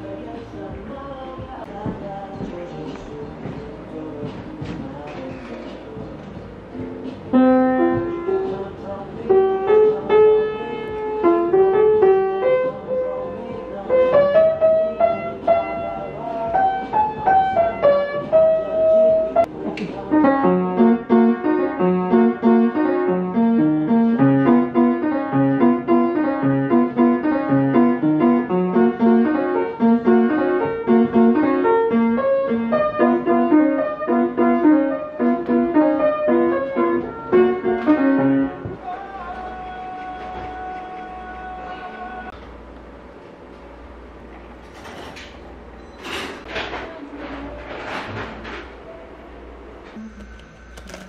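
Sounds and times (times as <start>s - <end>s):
upright piano playing: 0.0s - 42.4s.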